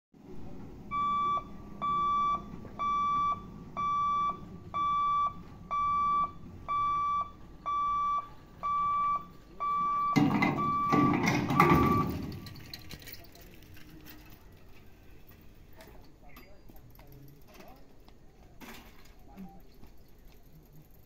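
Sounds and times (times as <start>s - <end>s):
level crossing warning beeps: 0.8s - 12.6s.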